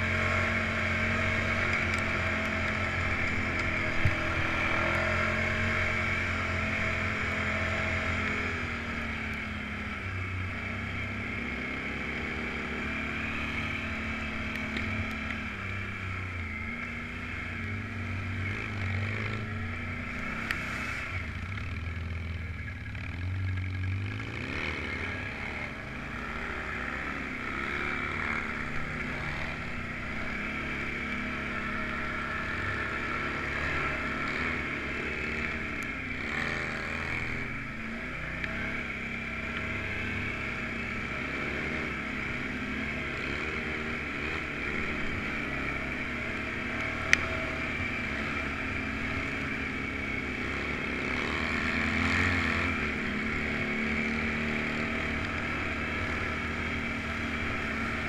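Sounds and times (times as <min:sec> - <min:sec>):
off-road vehicle engine running: 0:00.0 - 0:58.0.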